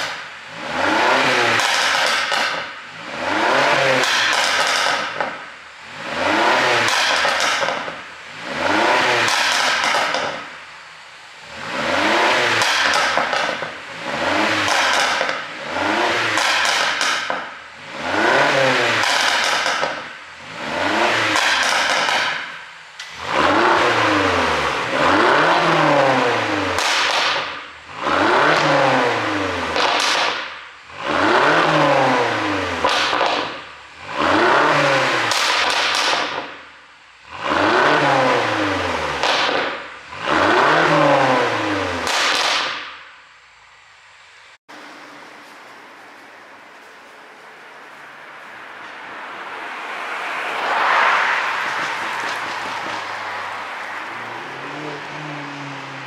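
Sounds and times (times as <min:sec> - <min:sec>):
car engine revving: 0:00.0 - 0:43.0, 0:44.7 - 0:56.0
exhaust pops and crackles: 0:01.5 - 0:02.8, 0:03.9 - 0:05.4, 0:06.8 - 0:08.0, 0:09.2 - 0:10.5, 0:12.5 - 0:17.6, 0:18.9 - 0:20.2, 0:21.2 - 0:23.2, 0:26.8 - 0:27.7, 0:29.7 - 0:30.7, 0:32.8 - 0:33.7, 0:35.2 - 0:36.7, 0:39.2 - 0:40.5, 0:42.0 - 0:43.2, 0:51.5 - 0:56.0.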